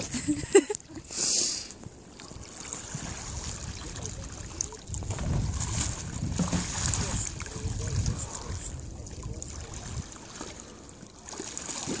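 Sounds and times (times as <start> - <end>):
water sloshing and lapping: 0.0 - 12.0
wind rumbling on microphone: 1.8 - 10.8.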